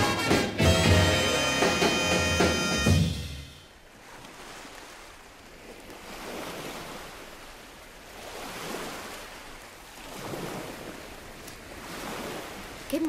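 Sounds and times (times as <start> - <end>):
waves washing onto sand: 3.8 - 13.0.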